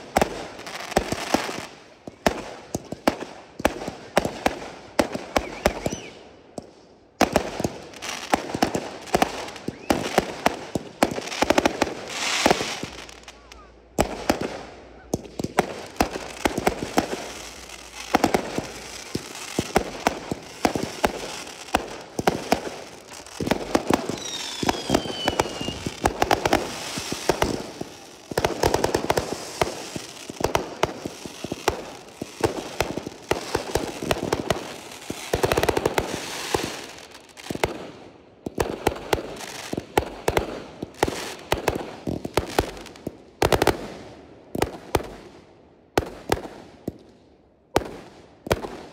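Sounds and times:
fireworks bursts and crackling: 0.0 - 48.9
firework whistle falling: 5.4 - 6.2, 24.1 - 26.0.

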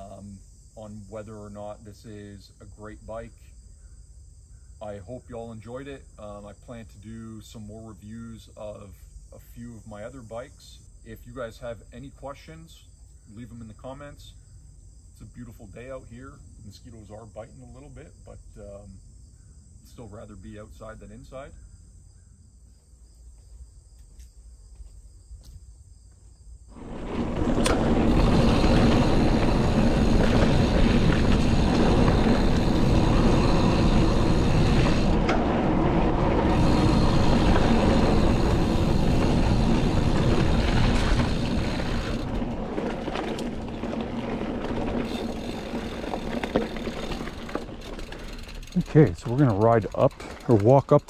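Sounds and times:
crickets chirping: 0.0 - 51.0
mountain bike rumbling on dirt trail: 26.7 - 51.0.

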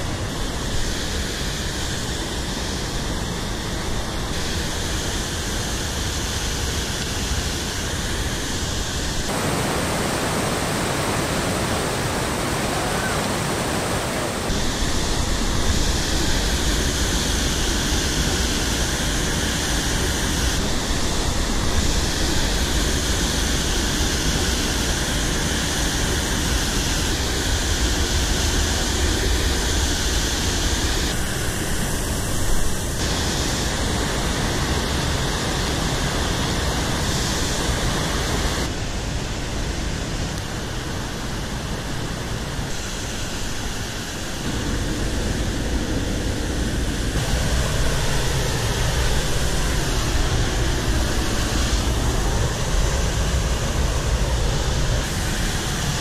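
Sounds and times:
rushing whitewater: 9.1 - 29.6.

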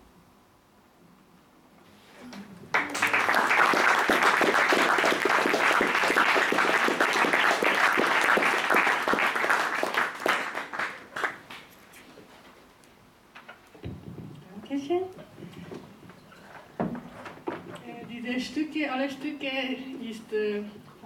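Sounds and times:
audience applauding: 2.7 - 11.7.

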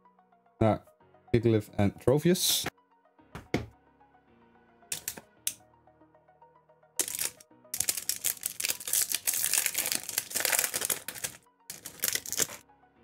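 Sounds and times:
soft background music: 0.0 - 13.0
foil wrapper crinkling and tearing: 7.0 - 12.6.

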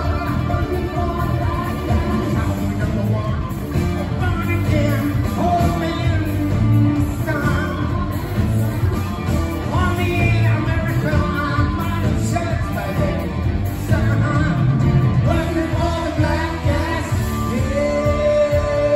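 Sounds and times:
lead singer singing: 0.0 - 18.9
live rock band playing: 0.0 - 18.9.

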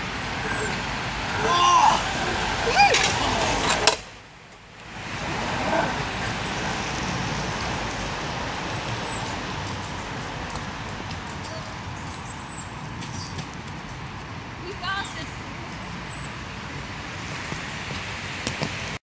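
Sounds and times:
zip wire trolley rumbling: 0.5 - 4.0.

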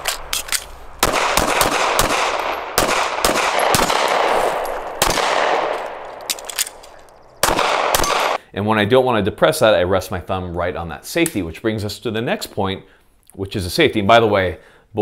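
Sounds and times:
pistol shots with echo: 1.0 - 8.4.

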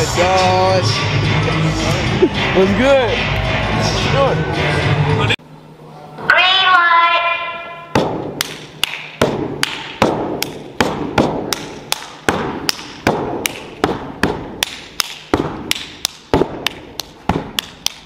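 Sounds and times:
hands clapping: 8.4 - 18.0.

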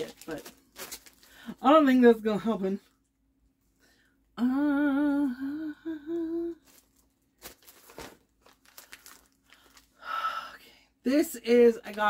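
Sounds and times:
packaging crinkling and rustling: 0.0 - 1.6, 6.6 - 10.0
woman humming: 4.4 - 6.6.

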